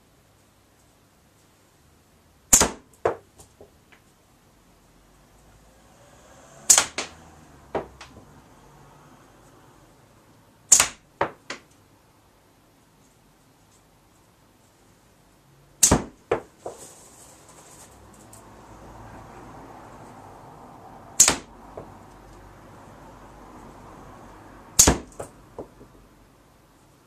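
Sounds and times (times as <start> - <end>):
slingshot ball cracking on target: 2.5 - 3.2, 6.6 - 7.2, 10.7 - 11.6, 15.8 - 16.8, 21.2 - 21.5, 24.8 - 25.3.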